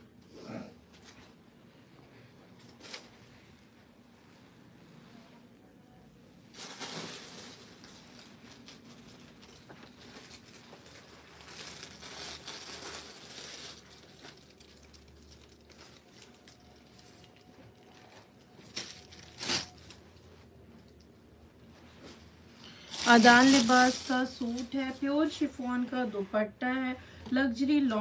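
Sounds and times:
plastic crinkling: 6.5 - 20.4, 22.6 - 25.4
cloth rustling: 21.7 - 26.4.

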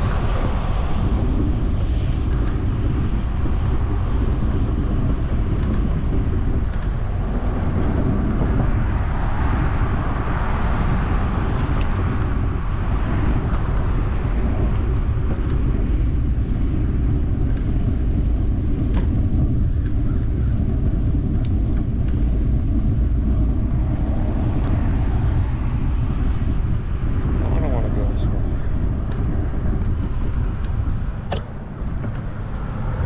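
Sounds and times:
wind buffeting microphone: 0.0 - 33.0
faint clicks: 17.4 - 22.3.

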